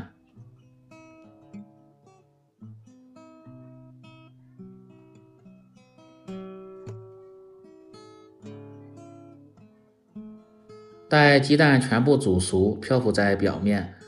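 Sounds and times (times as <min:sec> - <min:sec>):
acoustic guitar plucked notes: 0:00.0 - 0:14.0.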